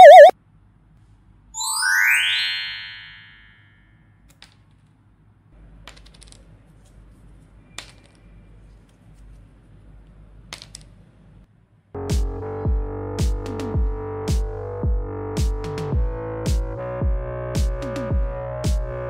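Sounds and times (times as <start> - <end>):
synthesized rising sweep: 0.0 - 0.3.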